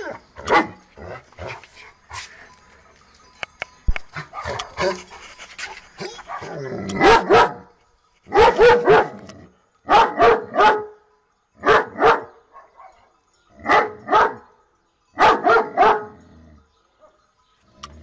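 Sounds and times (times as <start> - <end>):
dog barking: 0.0 - 0.8, 4.2 - 4.9, 6.1 - 7.7, 8.3 - 9.2, 9.9 - 10.9, 11.6 - 13.1, 13.7 - 14.4, 15.2 - 16.2.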